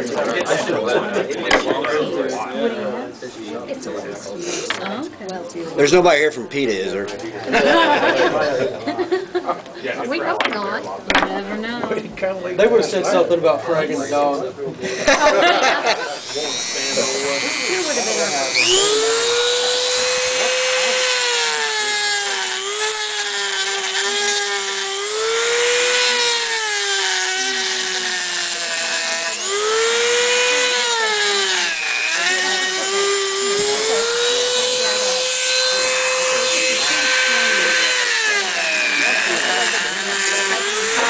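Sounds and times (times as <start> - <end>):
rotary tool grinding rock: 16.2 - 41.0.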